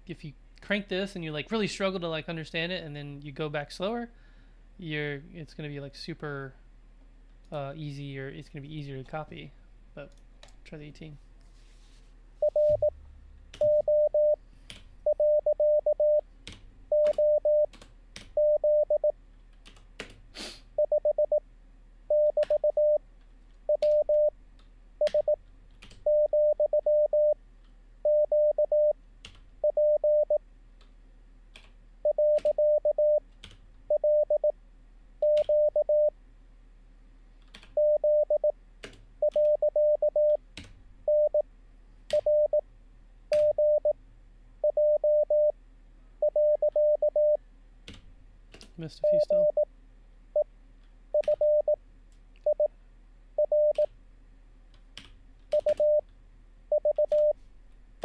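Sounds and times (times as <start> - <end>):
morse code tone beeps: 12.4 - 13.0, 13.6 - 14.4, 15.0 - 16.2, 16.9 - 17.7, 18.4 - 19.2, 20.8 - 21.4, 22.1 - 23.0, 23.7 - 24.3, 25.0 - 25.4, 26.0 - 27.4, 28.0 - 29.0, 29.6 - 30.4, 32.0 - 33.2, 33.9 - 34.5, 35.2 - 36.1, 37.8 - 38.5, 39.2 - 40.4, 41.1 - 41.4, 42.1 - 42.6, 43.4 - 44.0, 44.6 - 45.6, 46.2 - 47.4, 49.0 - 49.7, 51.1 - 51.8, 52.5 - 52.7, 53.4 - 53.9, 55.6 - 56.0, 56.7 - 57.4.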